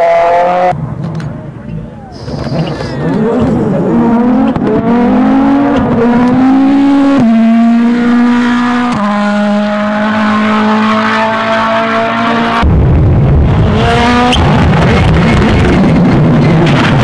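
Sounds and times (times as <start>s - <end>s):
rally car engine at high revs: 0.0s - 0.8s, 2.0s - 17.0s
deep engine rumble: 0.7s - 8.5s.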